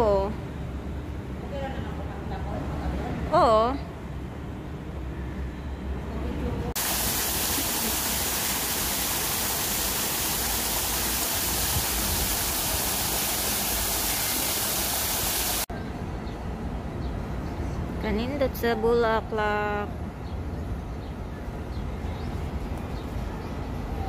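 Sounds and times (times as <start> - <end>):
waterfall splashing into a pool: 6.8 - 15.7.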